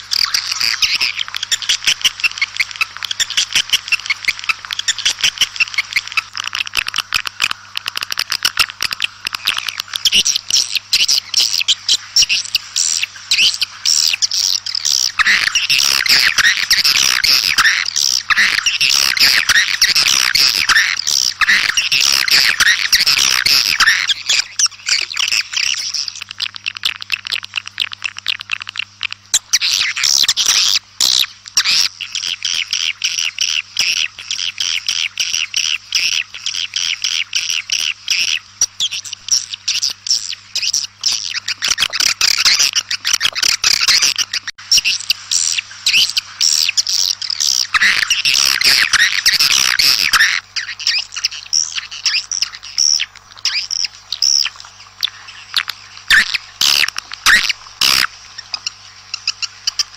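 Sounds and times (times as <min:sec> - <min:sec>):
swiftlets twittering: 0:00.0 - 0:36.2, 0:36.8 - 0:59.9.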